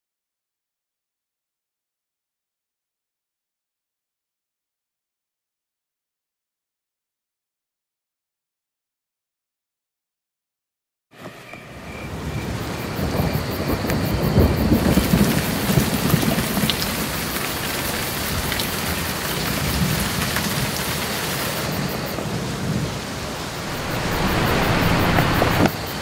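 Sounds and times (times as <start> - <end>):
heavy rain: 12.1 - 26.0
rolling thunder: 12.4 - 26.0.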